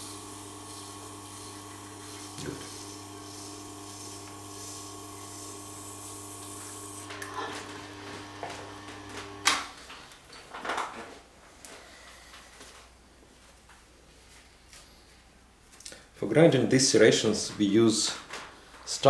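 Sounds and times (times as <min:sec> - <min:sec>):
cloth wiping knife blade: 0:00.0 - 0:07.0
high hiss: 0:00.0 - 0:07.1
sharpening machine motor hum: 0:00.0 - 0:09.6.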